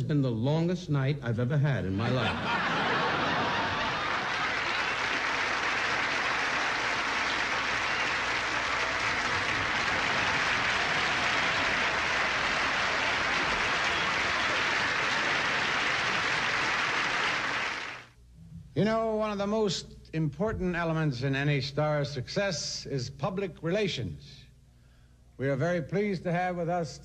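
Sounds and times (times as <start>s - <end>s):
audience applauding: 2.4s - 18.1s.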